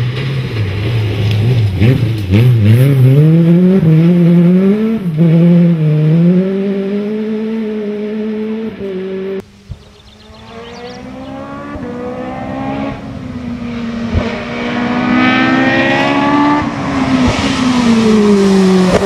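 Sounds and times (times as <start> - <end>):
rally engine revving: 0.0 - 19.0.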